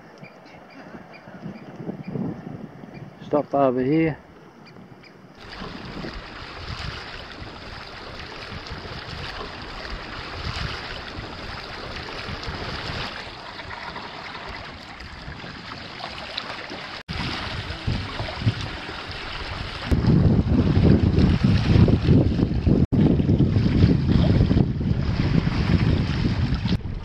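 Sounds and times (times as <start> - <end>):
wind buffeting microphone: 0.0 - 27.0
water rushing along kayak hull: 5.4 - 27.0.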